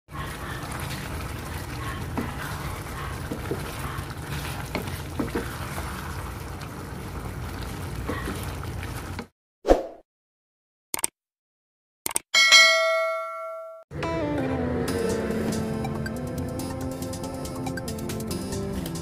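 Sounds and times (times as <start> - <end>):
sauce bubbling in a pan: 0.1 - 9.3.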